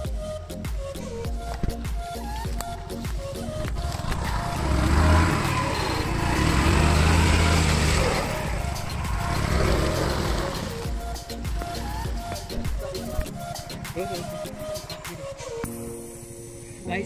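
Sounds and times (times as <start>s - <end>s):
scooter engine revving: 3.5s - 11.1s.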